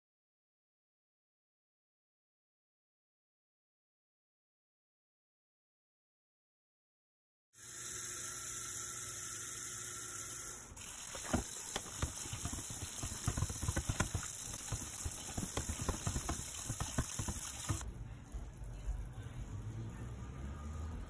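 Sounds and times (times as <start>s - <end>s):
pan scrubbing: 10.8s - 17.8s
tap water running onto pan: 10.8s - 17.8s
pan knocking against sink: 11.2s - 17.8s.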